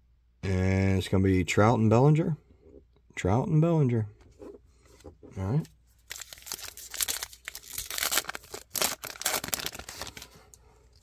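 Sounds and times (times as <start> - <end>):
card pack wrapper crinkling and tearing: 6.0 - 10.4.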